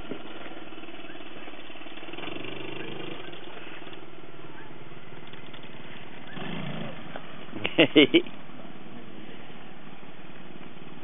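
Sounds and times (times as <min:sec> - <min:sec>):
outboard motor puttering: 0:00.0 - 0:04.1.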